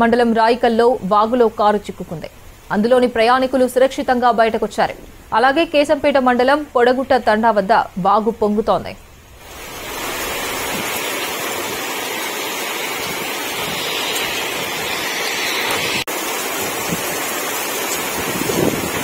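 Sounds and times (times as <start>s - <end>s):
flood water rushing: 9.3s - 19.0s.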